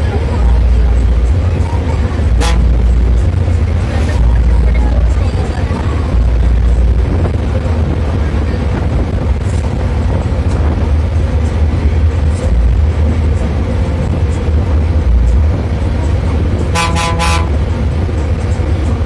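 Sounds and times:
diesel bus engine running: 0.0 - 19.0
bus horn pulses: 2.2 - 3.0, 16.5 - 17.8.

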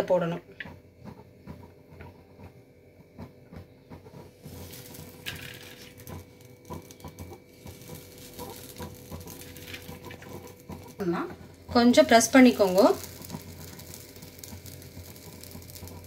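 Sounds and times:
batter sizzling on griddle: 3.9 - 16.0
onion dropped onto griddle: 4.5 - 10.9.

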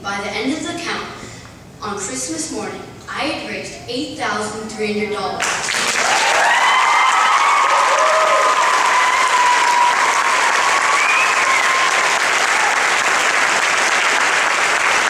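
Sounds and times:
audience applauding: 5.4 - 15.0
voices cheering: 6.0 - 13.3.

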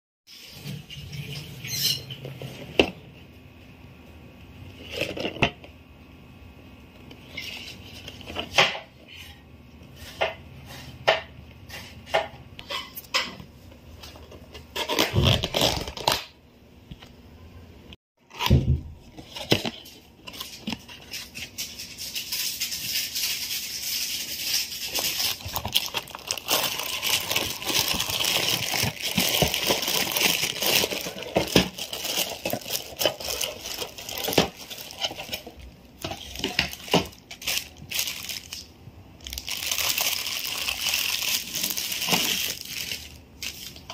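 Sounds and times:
plastic bag crinkling: 22.1 - 43.9.

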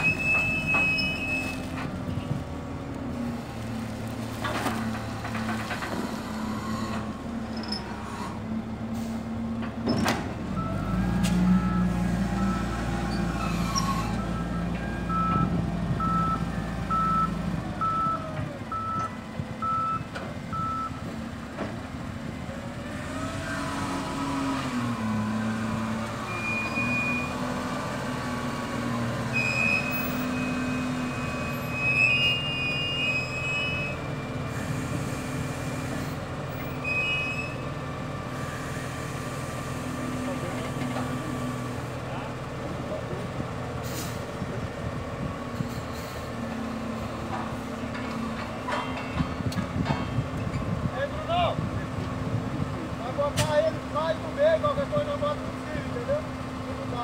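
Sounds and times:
wheel loader diesel engine revving: 0.0 - 36.9, 37.5 - 57.0
reversing alarm beeping: 10.5 - 21.0.

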